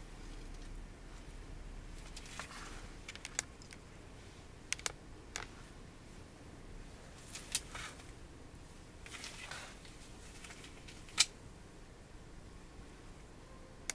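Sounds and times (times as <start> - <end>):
soft rustling of gloves: 0.1 - 4.5, 5.4 - 11.2.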